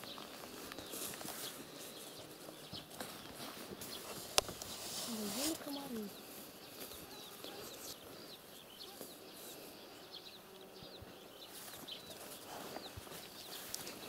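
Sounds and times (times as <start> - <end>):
faint background hiss: 0.0 - 14.0
small birds chirping: 0.0 - 14.0.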